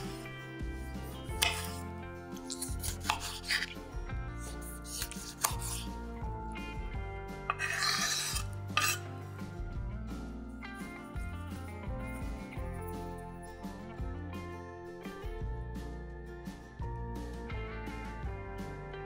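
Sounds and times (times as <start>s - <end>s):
background music: 0.0s - 19.0s
knife chopping on wooden board: 0.9s - 1.8s, 2.4s - 3.7s, 4.4s - 5.9s, 7.5s - 9.0s
scraping on cutting board: 0.9s - 3.8s, 4.4s - 6.0s, 7.5s - 9.1s.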